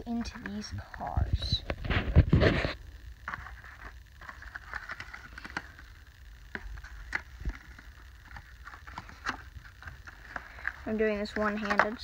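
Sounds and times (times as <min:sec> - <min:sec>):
plastic packaging clicks and crackles: 0:03.2 - 0:12.0.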